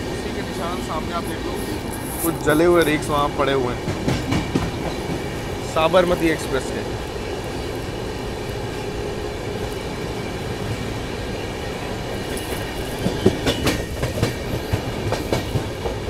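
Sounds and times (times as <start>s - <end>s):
train rolling rumble: 0.0s - 16.0s
wheels clicking over rail joints: 11.6s - 16.0s.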